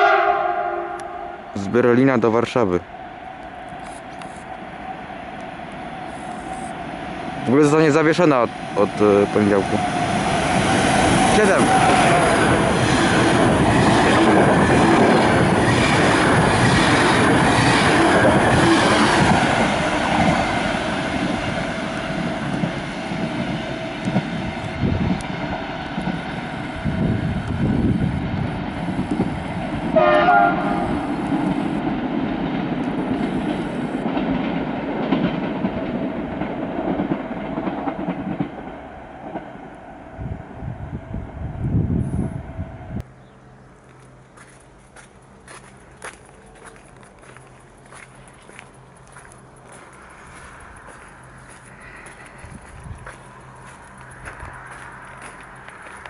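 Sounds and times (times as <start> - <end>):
train horn blast: 0.0 - 1.5, 29.9 - 31.5
train rushing past: 0.0 - 43.1, 45.0 - 56.0.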